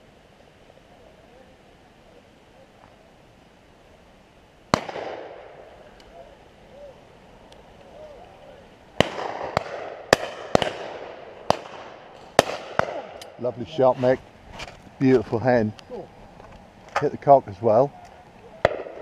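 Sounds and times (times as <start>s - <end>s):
shotgun shots: 4.7s - 5.7s, 9.0s - 13.3s, 18.6s - 19.0s
faint distant shots: 4.7s - 6.2s, 9.0s - 13.5s, 18.6s - 19.0s.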